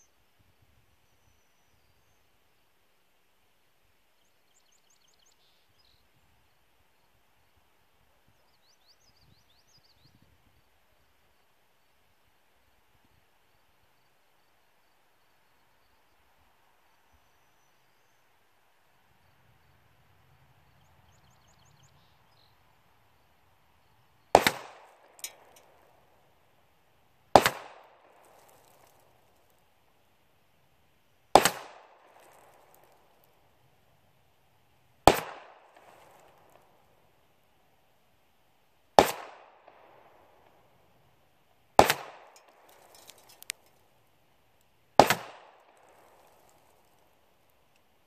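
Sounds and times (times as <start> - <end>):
faint bird chirps: 0.9 - 2.6, 4.1 - 11.5, 13.9 - 18.5, 20.6 - 24.3
pistol shot crack: 24.3 - 25.8, 27.3 - 28.8, 31.3 - 32.7, 35.1 - 36.6, 39.0 - 40.1, 41.8 - 43.4, 45.0 - 46.3.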